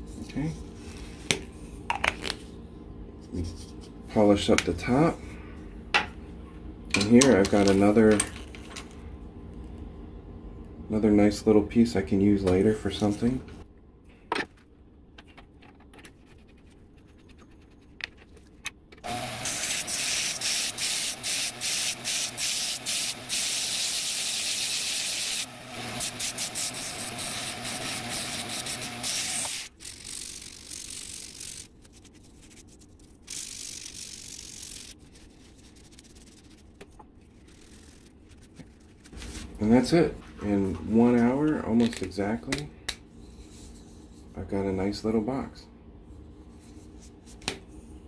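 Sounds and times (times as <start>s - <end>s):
sanding disc hissing on wood: 19.0s - 31.7s
cloth rubbing on wood: 33.8s - 39.5s.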